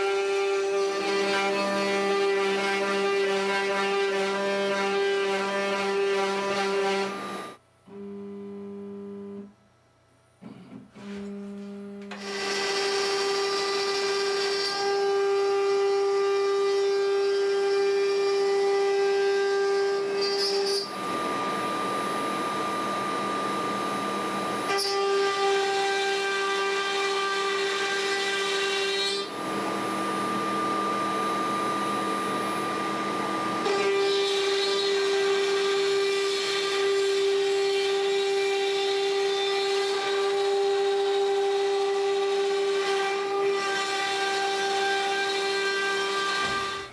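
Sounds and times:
router spindle whine: 11.0s - 46.9s
rushing noise of wood cutting: 12.1s - 46.9s.

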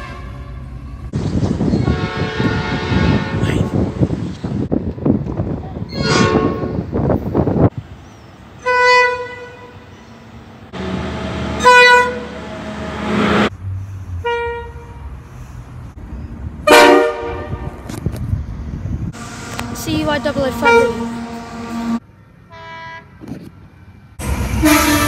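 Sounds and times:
locomotive horn blasts: 0.0s - 0.8s, 1.8s - 3.8s, 6.0s - 6.8s, 8.6s - 9.9s, 10.8s - 13.5s, 14.2s - 15.0s, 16.6s - 17.8s, 19.4s - 23.2s, 24.4s - 25.0s
locomotive rumble: 0.0s - 25.0s.

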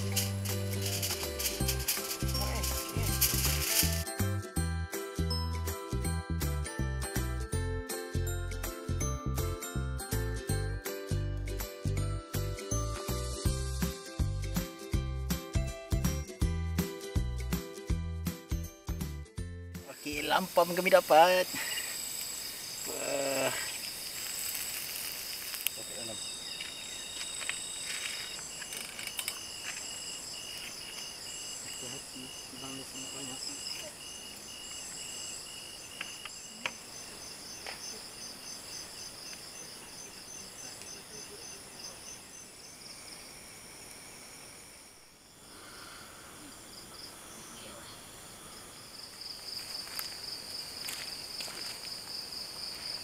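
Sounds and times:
crickets chirring: 0.0s - 4.3s, 19.8s - 53.0s
pulsing insect trill: 0.0s - 4.4s, 19.8s - 53.0s.

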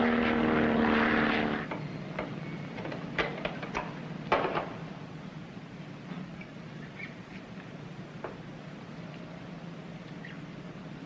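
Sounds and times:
propeller aircraft engine droning: 0.0s - 11.0s
sharp knocks and clunks: 1.7s - 4.8s.

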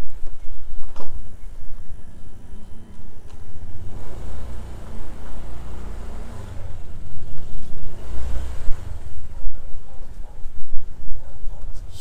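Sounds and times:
scooter engine running: 1.9s - 10.3s.

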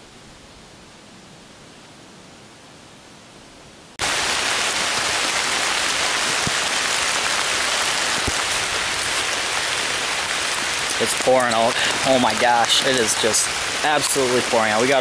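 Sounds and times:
heavy rain pouring: 3.9s - 15.0s.

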